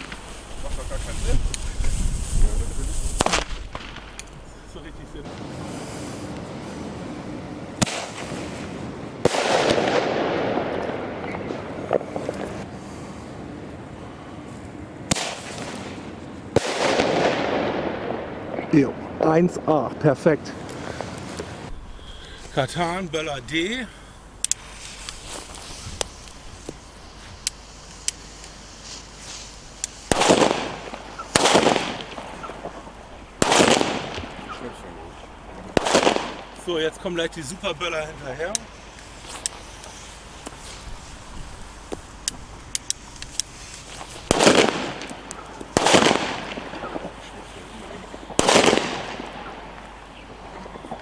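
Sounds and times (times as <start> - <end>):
fuse crackling: 0.0 - 51.0
firecracker bangs with echo: 3.1 - 4.2, 7.8 - 12.4, 15.1 - 19.1, 30.1 - 34.6, 35.8 - 36.7, 44.2 - 47.2, 48.3 - 49.8.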